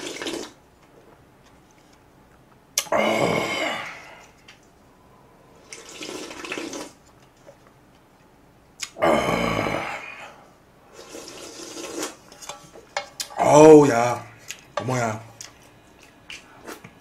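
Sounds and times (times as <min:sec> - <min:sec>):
person slurping broth: 0:10.9 - 0:12.3.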